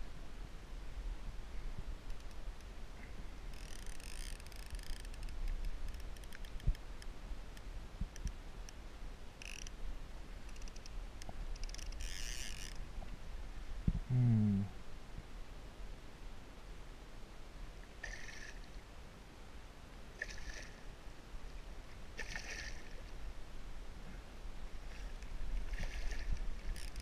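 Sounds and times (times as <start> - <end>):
fishing reel whirring: 3.5 - 5.3, 9.4 - 9.7, 11.6 - 12.8, 25.8 - 27.0.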